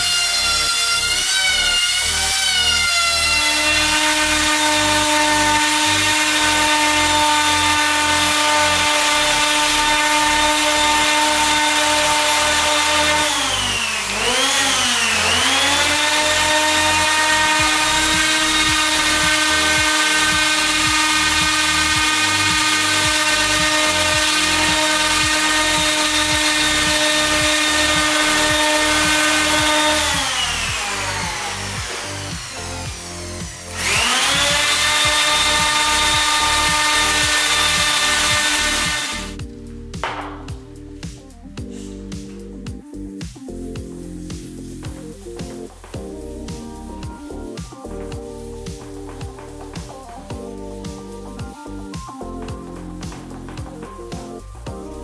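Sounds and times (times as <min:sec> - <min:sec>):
orbital sander on wood: 0:00.0 - 0:39.4, 0:43.6 - 0:55.0.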